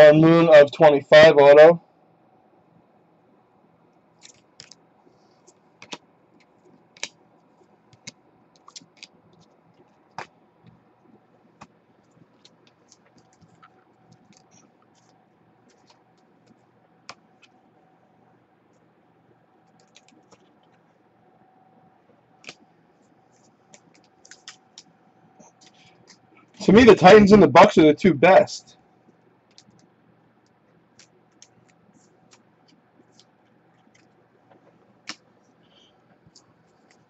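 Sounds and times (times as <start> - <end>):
typing on computer keyboard: 7.9 - 9.5, 19.7 - 20.8.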